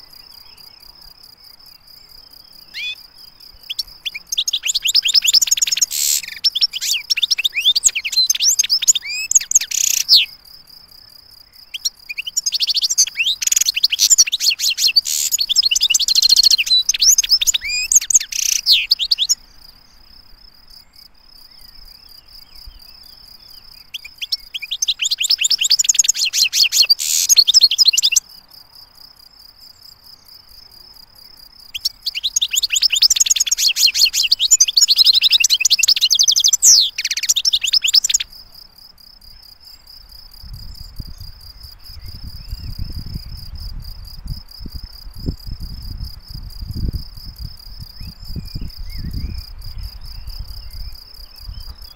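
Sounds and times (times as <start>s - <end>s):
goldfinch twittering song: 2.2s - 10.4s, 11.6s - 19.5s, 21.6s - 28.3s, 31.7s - 38.4s.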